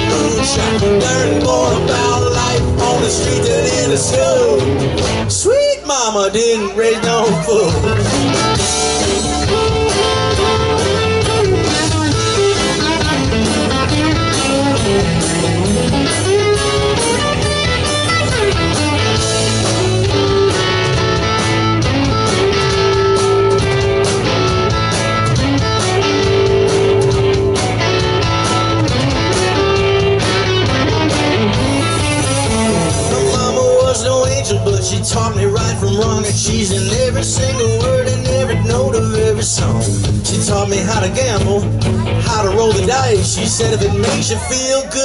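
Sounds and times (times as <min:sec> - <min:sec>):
bass guitar: 0:00.0 - 0:45.0
drums: 0:00.0 - 0:45.0
electric guitar solo with bent notes: 0:06.6 - 0:38.8.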